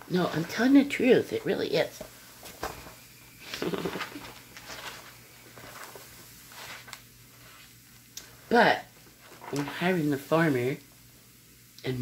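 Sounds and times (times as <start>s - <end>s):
chair squeaking and clicking: 3.5s - 4.8s.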